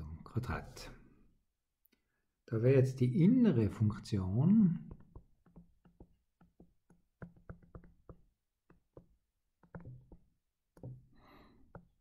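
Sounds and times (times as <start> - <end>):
stylus tapping on tablet screen: 4.6 - 12.0.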